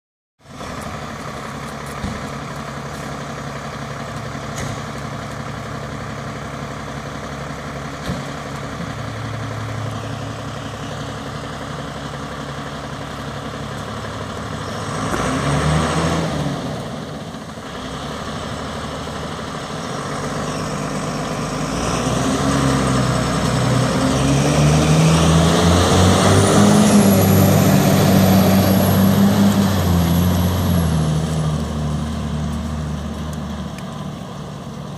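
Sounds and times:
diesel engine running and revving: 0.4s - 34.9s.

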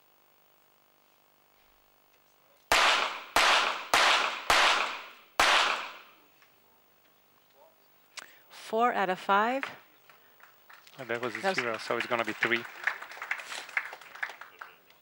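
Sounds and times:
pistol shots with echo: 2.7s - 6.1s.

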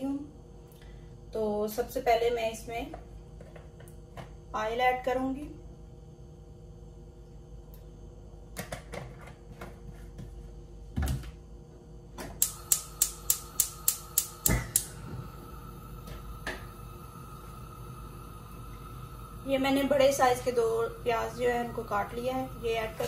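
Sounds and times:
gas stove igniter clicking: 12.2s - 23.0s.

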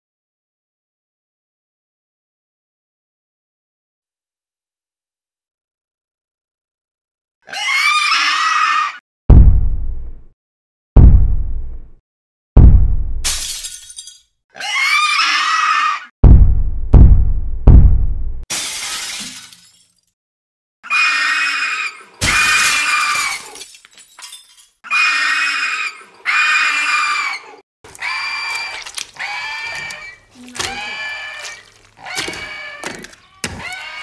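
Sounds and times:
high-pitched creature cries: 7.5s - 9.0s, 14.6s - 16.1s, 20.8s - 23.4s, 24.9s - 34.0s
glass shattering: 13.2s - 14.3s, 18.5s - 20.2s, 22.2s - 24.8s.

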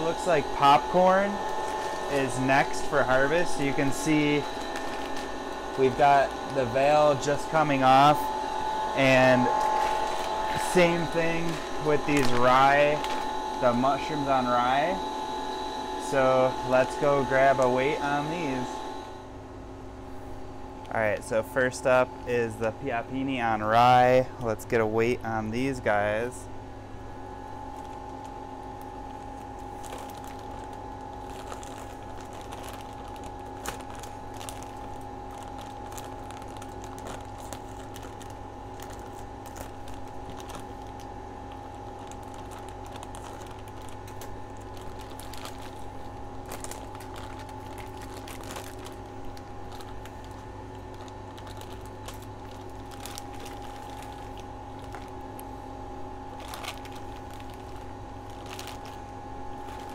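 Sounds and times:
plastic bag crinkling: 0.0s - 14.8s, 27.3s - 59.9s
steady tonal hum: 0.0s - 59.9s.

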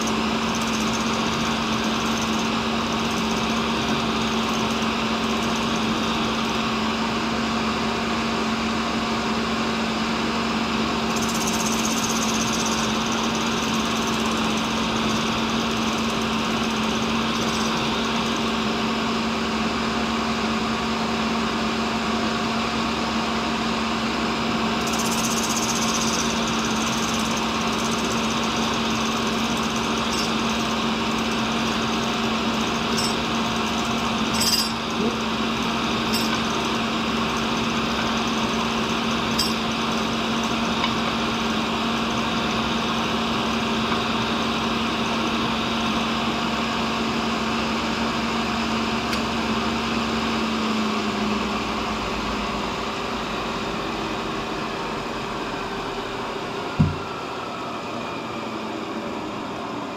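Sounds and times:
grinder motor hum: 0.0s - 6.8s, 24.8s - 46.4s, 55.0s - 59.0s.

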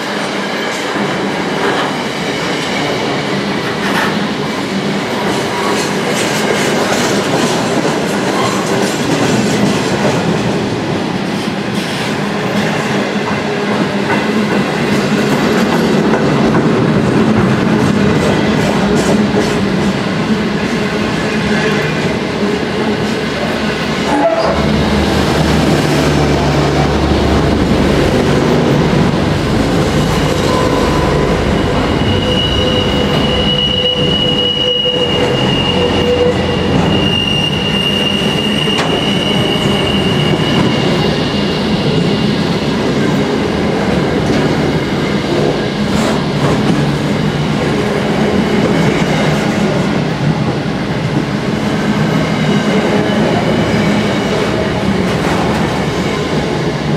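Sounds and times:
train wheels rumbling on rail: 0.0s - 56.9s
high-pitched wheel squeal: 30.2s - 41.6s.

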